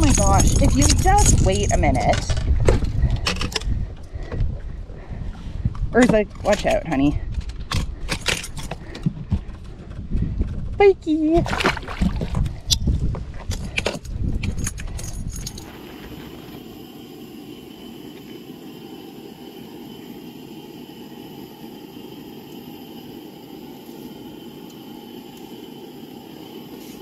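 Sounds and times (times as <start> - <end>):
wind rumble on microphone: 0.0 - 17.0
knocks and clatter on boat: 2.0 - 4.6, 7.4 - 14.8
steady hiss: 15.5 - 27.0.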